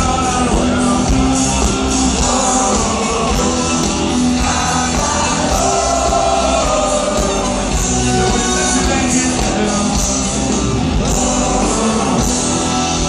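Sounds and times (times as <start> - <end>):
live rock band with singer: 0.0 - 13.0.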